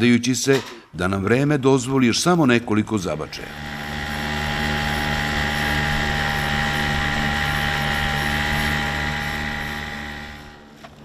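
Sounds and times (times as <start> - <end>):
boat motor humming with whine: 3.3 - 11.0.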